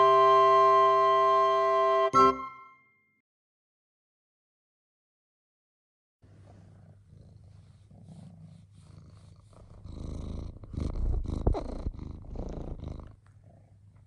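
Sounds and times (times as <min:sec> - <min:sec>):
cat purring: 0:06.2 - 0:14.0
cat snuffle: 0:06.2 - 0:14.0.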